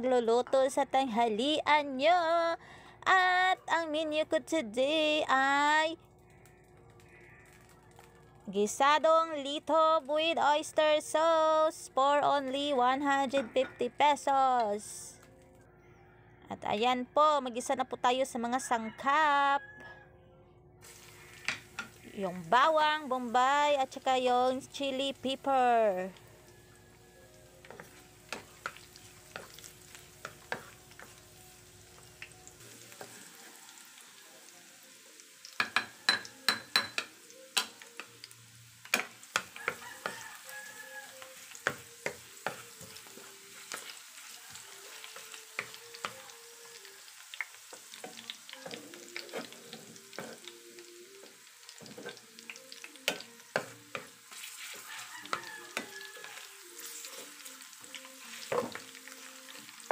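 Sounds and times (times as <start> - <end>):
garlic sizzling in hot oil: 20.8 - 59.9
spatula clicking on pan: 35.5 - 38.1, 38.8 - 40.2.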